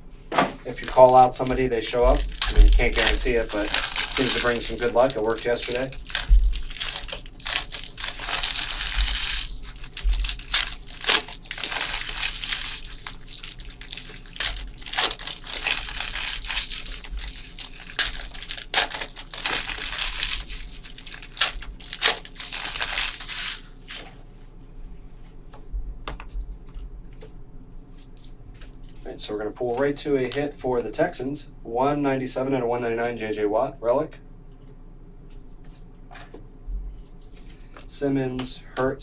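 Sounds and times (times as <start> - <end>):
wrappers crinkling: 0.6 - 24.1
card packs torn open: 0.7 - 24.0.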